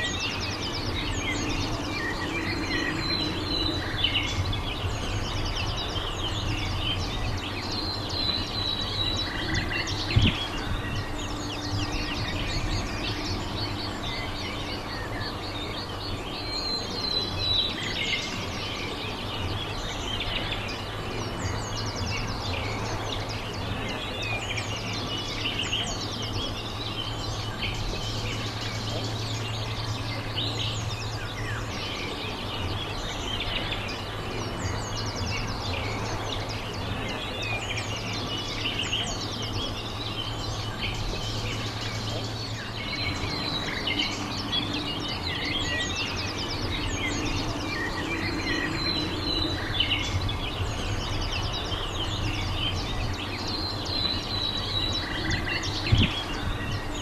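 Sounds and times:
small birds chirping: 0:00.0 - 0:57.0
steady low hum: 0:00.0 - 0:57.0.

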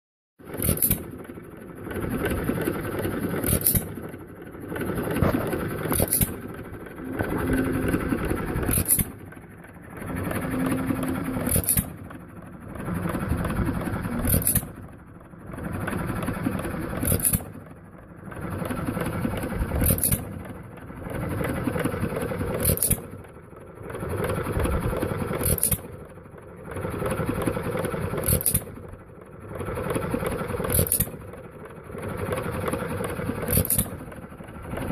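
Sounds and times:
engine sharp crack: 0:00.4 - 0:15.0, 0:15.6 - 0:17.6
hit-and-miss engine running: 0:00.4 - 0:34.9.

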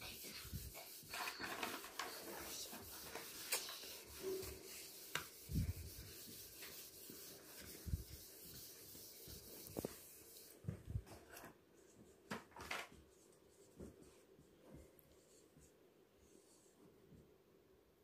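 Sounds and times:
eraser rubbing on whiteboard: 0:00.0 - 0:10.6.

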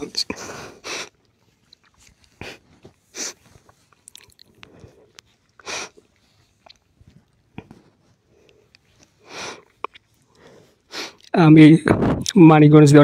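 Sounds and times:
man sniffing while crying: 0:00.3 - 0:01.2, 0:02.3 - 0:03.6, 0:05.6 - 0:06.1, 0:09.2 - 0:09.8, 0:10.5 - 0:11.2
soft breathing: 0:00.3 - 0:11.3.

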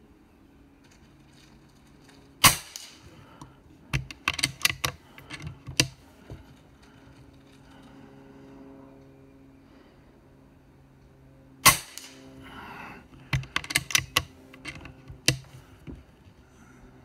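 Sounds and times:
air rifle shot crack: 0:02.4 - 0:03.1, 0:11.6 - 0:12.3.

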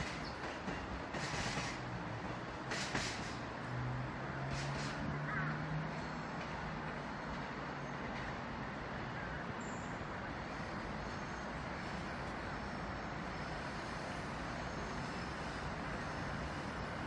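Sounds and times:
electric train rushing: 0:00.0 - 0:05.1, 0:09.8 - 0:17.0
low train hum: 0:00.0 - 0:17.0.

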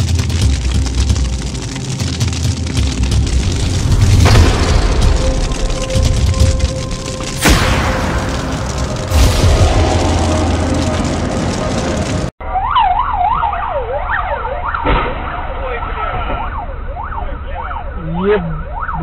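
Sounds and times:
low rumble: 0:00.0 - 0:12.4
ambulance siren wailing: 0:09.6 - 0:19.0.

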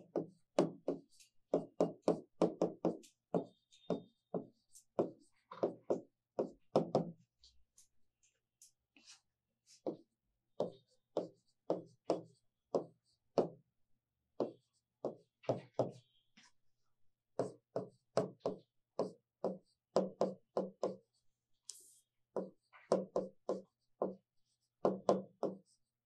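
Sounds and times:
chalk tapping on blackboard: 0:00.0 - 0:07.1, 0:09.8 - 0:10.0, 0:10.6 - 0:13.6, 0:14.4 - 0:16.0, 0:17.4 - 0:25.8.

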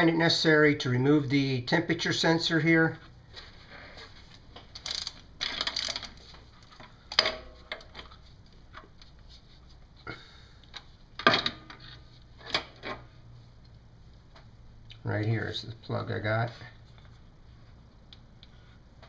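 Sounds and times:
ratchet wrench clicking: 0:04.8 - 0:06.1.

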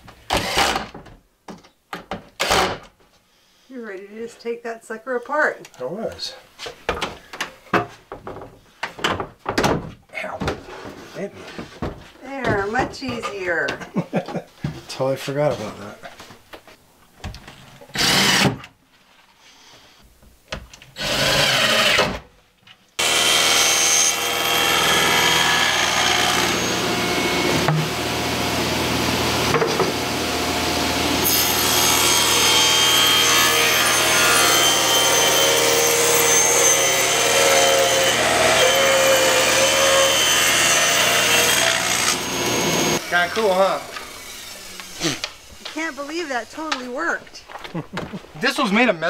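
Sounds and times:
table saw ripping wood: 0:00.3 - 0:01.0, 0:02.4 - 0:02.9, 0:17.9 - 0:18.7, 0:21.0 - 0:22.2, 0:23.0 - 0:30.2, 0:31.1 - 0:45.9
cordless drill driving screw: 0:17.9 - 0:18.6.

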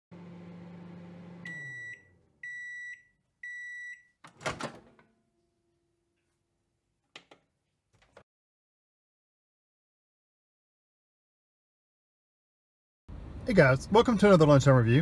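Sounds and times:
microwave oven humming: 0:00.1 - 0:02.8
microwave timer beeps: 0:01.3 - 0:04.2.

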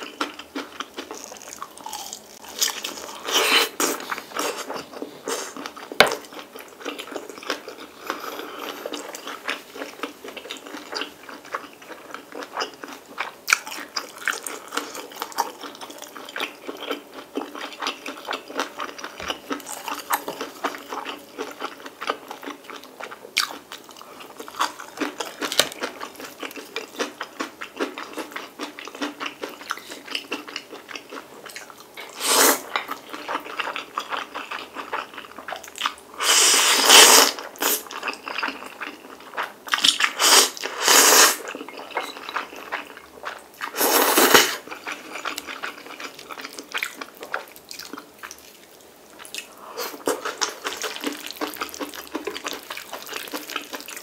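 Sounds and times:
person chewing: 0:00.0 - 0:54.0
noodle slurp: 0:36.2 - 0:37.9, 0:40.1 - 0:41.5, 0:43.6 - 0:44.6.

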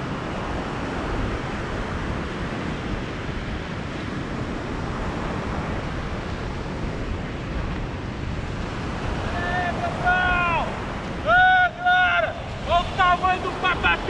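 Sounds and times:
ocean surf washing onto beach: 0:00.0 - 0:14.0
wind rumbling on microphone: 0:00.0 - 0:14.0.

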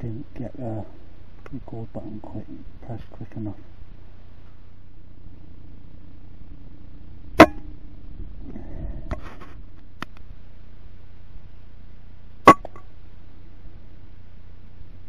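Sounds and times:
brief rustle: 0:08.5 - 0:10.3.

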